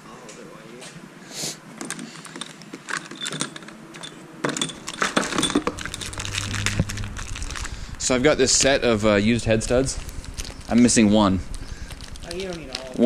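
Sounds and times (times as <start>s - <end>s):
metal studs clinking: 1.8s - 6.5s.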